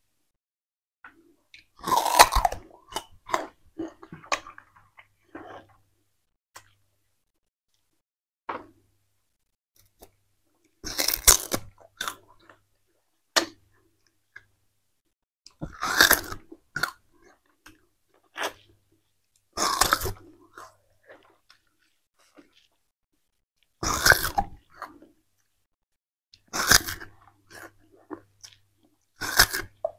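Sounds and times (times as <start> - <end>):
sugarcane crunching while chewed: 1.6 - 5.8, 10.8 - 12.6, 15.5 - 18.8, 19.4 - 22.8, 23.6 - 25.5, 26.4 - 29.9.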